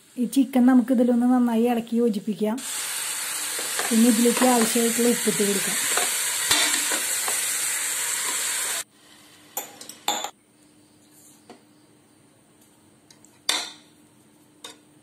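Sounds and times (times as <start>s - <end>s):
chicken sizzling in hot oil: 2.6s - 8.9s.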